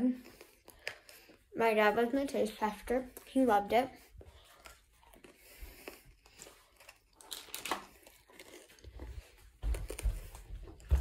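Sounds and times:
person chewing crunchy snack: 4.2 - 11.0.

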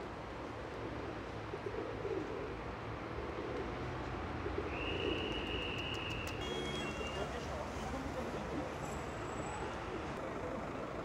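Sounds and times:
pigeons cooing: 1.0 - 2.6.

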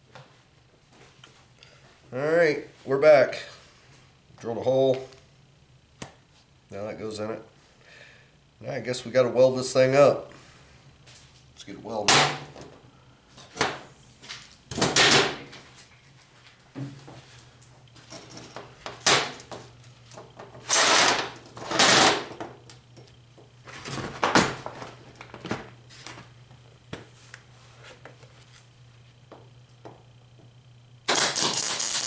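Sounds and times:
low steady hum: 0.0 - 31.8.

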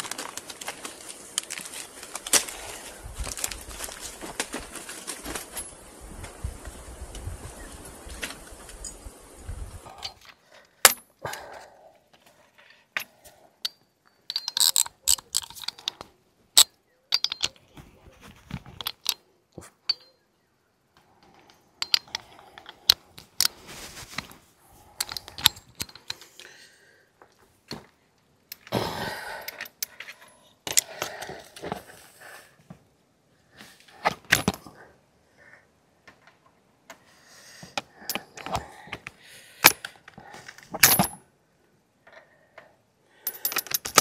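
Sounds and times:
metal tools clinking: 13.0 - 17.7, 19.8 - 20.2, 21.4 - 23.5, 25.0 - 26.4, 40.5 - 41.2, 43.2 - 44.0.

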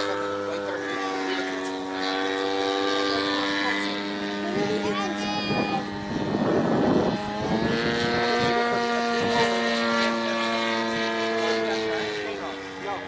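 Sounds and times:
model plane engine droning: 0.0 - 13.0
wind noise: 4.0 - 11.4.

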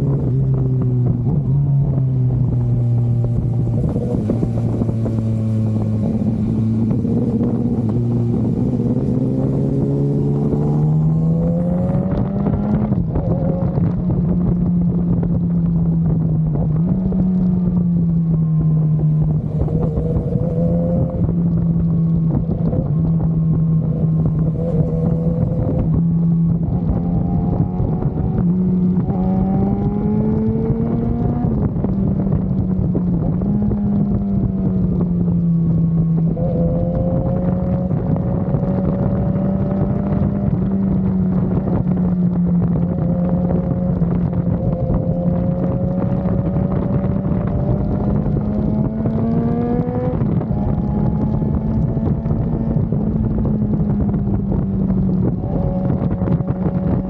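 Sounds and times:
motorcycle engine cruising: 0.0 - 57.0
wind rushing over microphone: 0.0 - 57.0.

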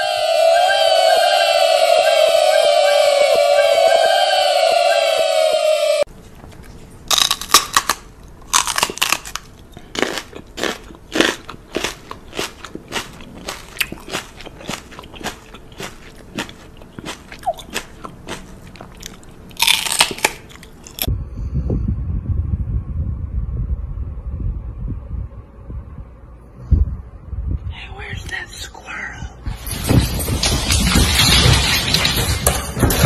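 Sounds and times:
crunching and chewing: 6.4 - 21.1.

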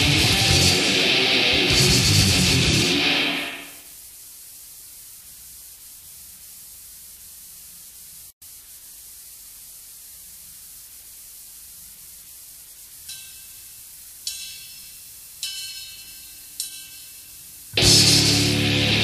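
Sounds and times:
cassette tape hiss: 0.0 - 19.0.

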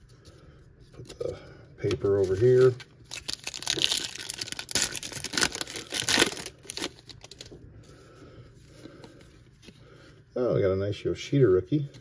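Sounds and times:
wrapper crinkling and tearing: 1.8 - 7.5.

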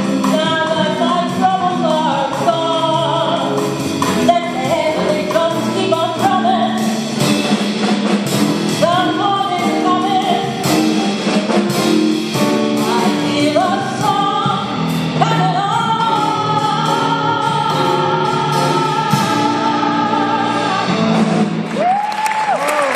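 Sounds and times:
woman singing into microphone: 0.0 - 6.9, 8.8 - 10.7, 12.8 - 21.2
band accompaniment: 0.0 - 22.9.

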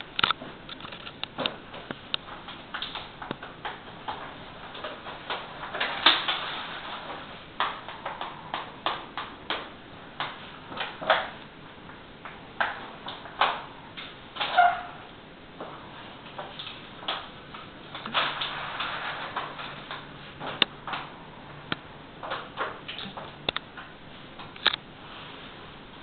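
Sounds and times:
sharp taps and clicks: 21.7 - 24.8.

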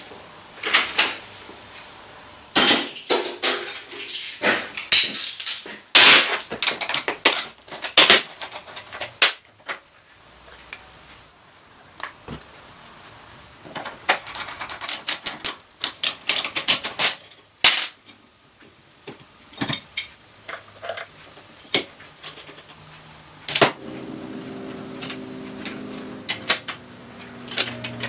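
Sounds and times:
metal tools clinking and knocking: 2.6 - 9.4, 13.8 - 18.2, 19.1 - 22.8, 24.9 - 28.0.

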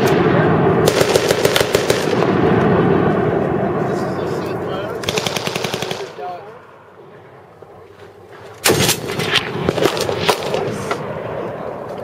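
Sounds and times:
heavy rifle shots: 0.0 - 3.1, 5.0 - 6.3, 8.6 - 11.2
automatic gunfire: 0.8 - 2.4, 5.0 - 6.2.

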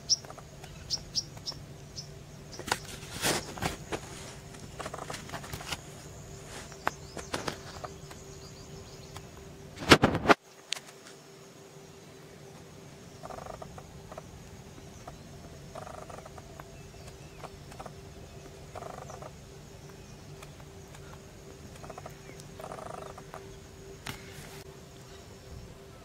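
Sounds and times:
frogs croaking: 0.0 - 9.8, 11.2 - 26.0
faint steady hum: 0.0 - 26.0.

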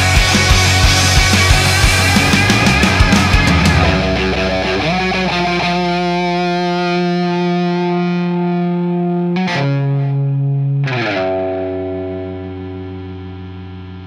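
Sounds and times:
distorted electric guitar chords: 0.0 - 14.0.

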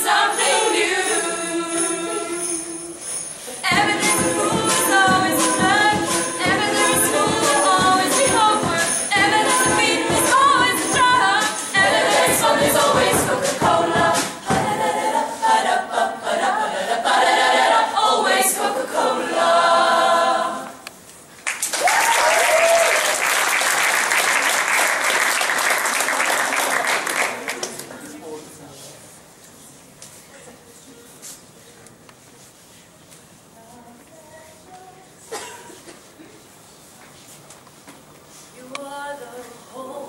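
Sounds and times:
women singing together: 0.0 - 20.8, 38.6 - 40.0
sharp rhythmic hits: 0.1 - 15.2
audience applauding: 21.4 - 28.0.

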